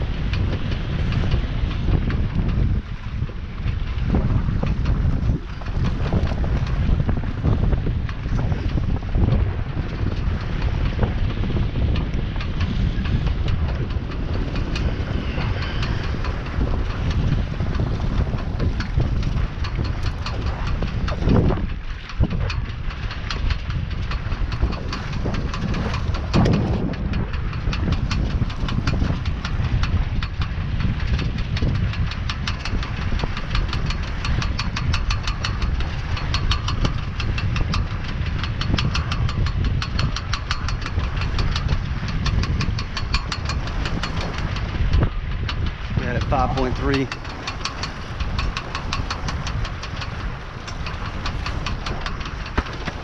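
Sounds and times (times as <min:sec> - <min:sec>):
rapid even ticking rattle: 0:00.0 - 0:53.0
wind buffeting microphone: 0:00.0 - 0:53.0.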